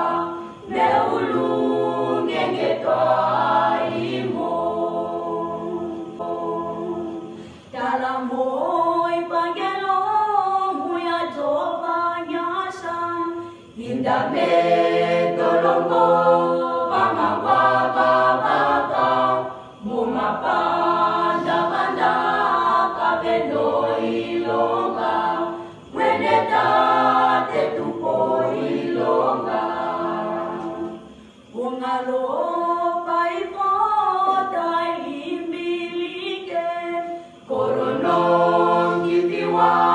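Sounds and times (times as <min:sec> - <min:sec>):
choir singing a cappella: 0:00.0 - 0:39.9
singers breathing: 0:07.3 - 0:07.8, 0:25.5 - 0:25.9.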